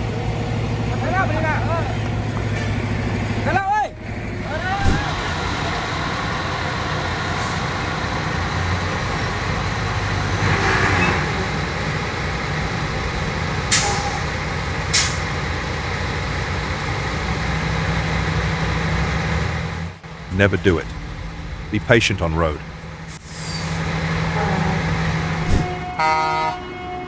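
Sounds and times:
road noise: 0:00.0 - 0:27.0
truck running: 0:00.0 - 0:27.0
short sharp sounds: 0:04.6 - 0:05.4.

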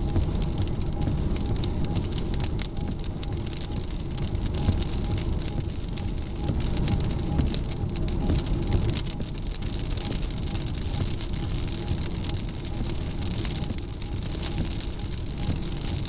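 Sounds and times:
rain on car windshield: 0:00.0 - 0:16.0.

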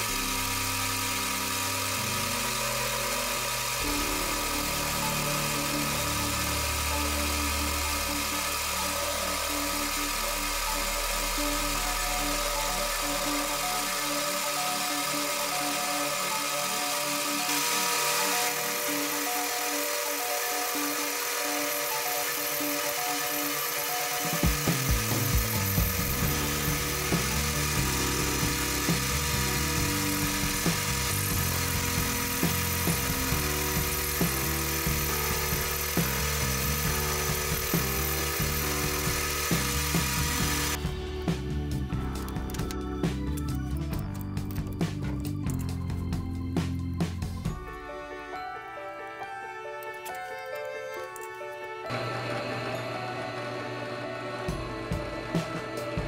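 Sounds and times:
metal lathe cutting threads: 0:00.0 - 0:41.0, 0:47.6 - 0:56.0
background music: 0:00.0 - 0:56.0.

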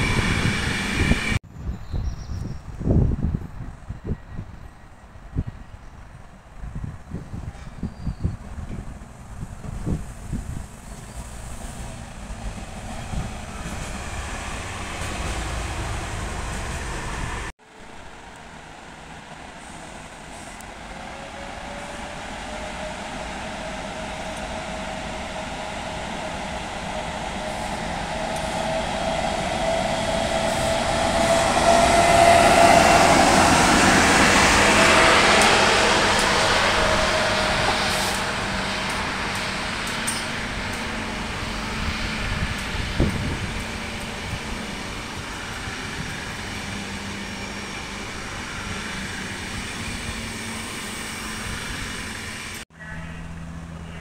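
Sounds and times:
electric locomotive whine: 0:00.0 - 0:01.4, 0:02.3 - 0:54.0
train wheels rumbling: 0:03.1 - 0:52.6.

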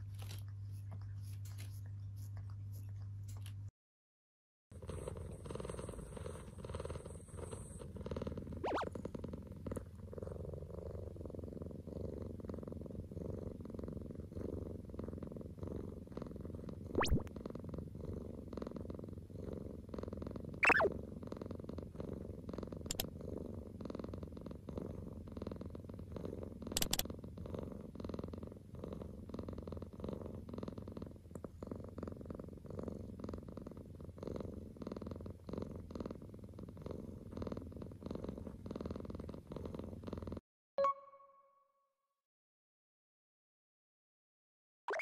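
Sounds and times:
cat purring: 0:00.0 - 0:03.7, 0:04.7 - 0:40.4
tone falling in pitch: 0:20.6 - 0:20.9, 0:40.8 - 0:41.7
faint clicks: 0:22.9 - 0:23.1, 0:26.7 - 0:27.1.

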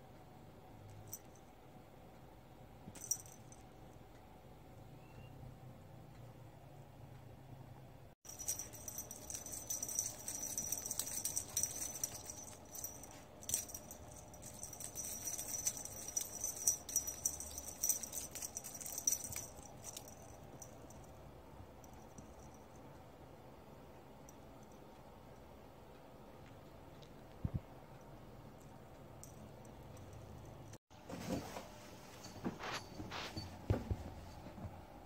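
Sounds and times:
high-pitched jingling rattle: 0:08.3 - 0:21.1.

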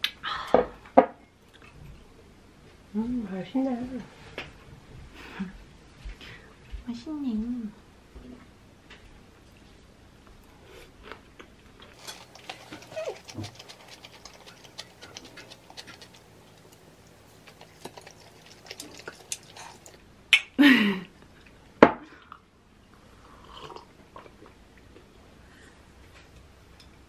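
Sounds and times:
person chewing food: 0:11.9 - 0:20.1, 0:23.3 - 0:25.1
wet mouth clicks: 0:12.2 - 0:20.6.

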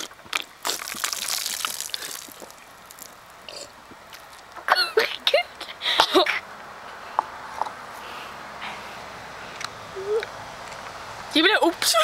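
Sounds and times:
soda pouring and splashing: 0:00.0 - 0:03.5, 0:04.1 - 0:04.6.

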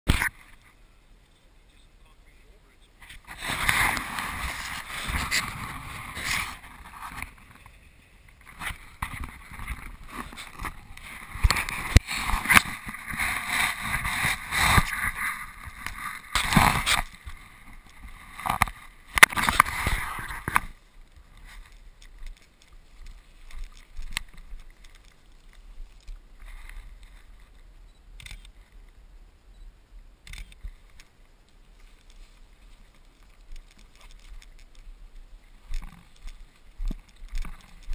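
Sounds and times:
bike tyres rattling on gravel: 0:03.2 - 0:27.6.

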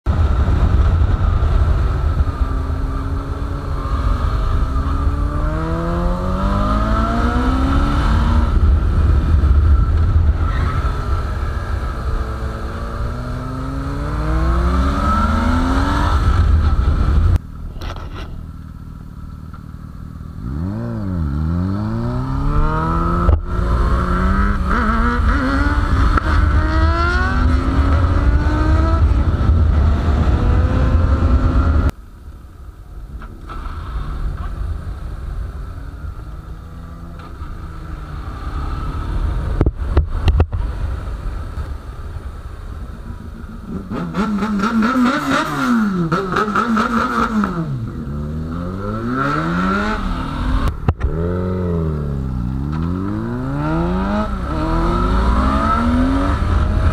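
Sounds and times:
wind rumble on microphone: 0:00.1 - 0:18.4, 0:21.2 - 0:32.0, 0:37.6 - 0:43.8
motorcycle engine accelerating: 0:00.1 - 0:32.0, 0:33.0 - 0:56.9.

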